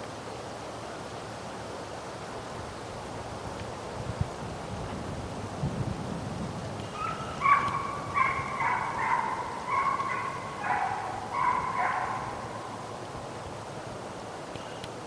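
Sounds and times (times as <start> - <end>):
hounds barking and baying: 6.9 - 13.1.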